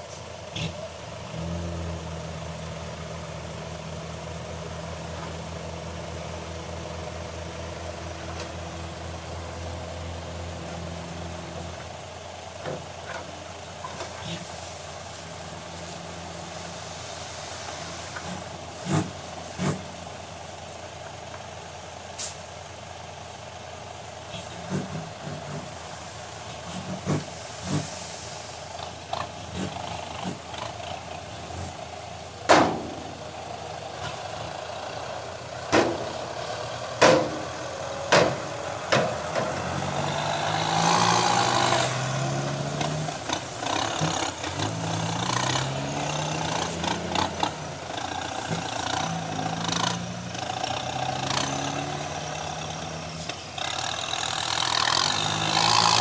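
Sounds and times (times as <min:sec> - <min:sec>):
dump truck engine running: 0:00.0 - 0:56.0
tractor engine: 0:00.0 - 0:56.0.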